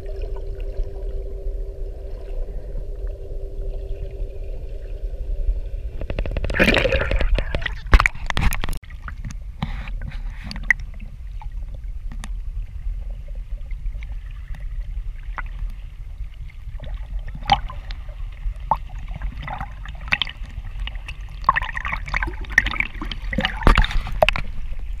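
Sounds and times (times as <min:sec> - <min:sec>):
waves splashing against camera: 0:05.8 - 0:11.4.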